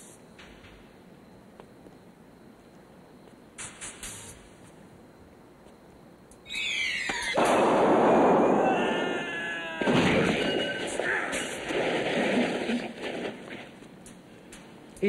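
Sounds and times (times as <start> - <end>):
high scream falling in pitch: 6.4 - 11.2
wavering cry: 6.4 - 11.6
loud crash: 7.1 - 13.6.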